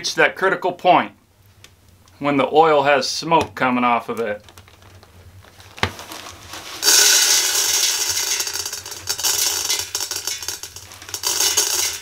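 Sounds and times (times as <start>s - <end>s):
popcorn kernels rattling into pot: 5.7s - 12.0s.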